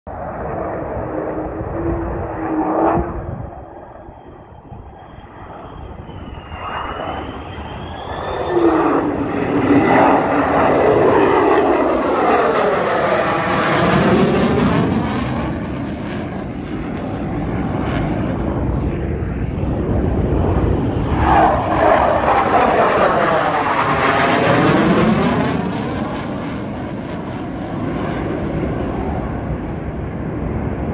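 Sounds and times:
fighter jet roaring past: 0:00.1 - 0:30.9
faint rising whistle: 0:02.5 - 0:09.3.

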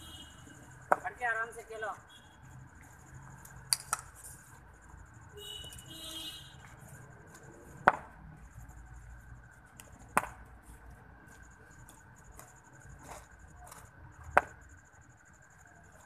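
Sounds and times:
ball knocking on bat: 0:07.8 - 0:08.1.

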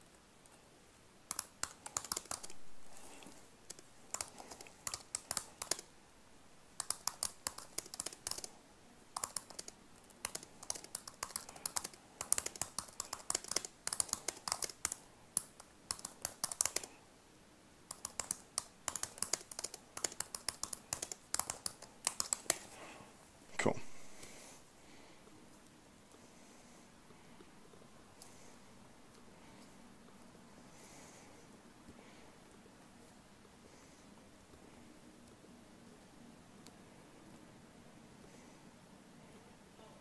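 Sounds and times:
computer keyboard typing: 0:01.3 - 0:05.9, 0:06.8 - 0:17.0, 0:17.8 - 0:22.8.

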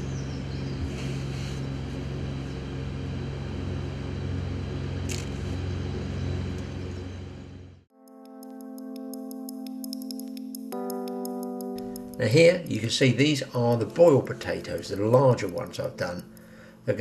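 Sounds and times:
low mechanical hum: 0:00.0 - 0:07.9
sustained keyboard tones music: 0:07.9 - 0:17.0.

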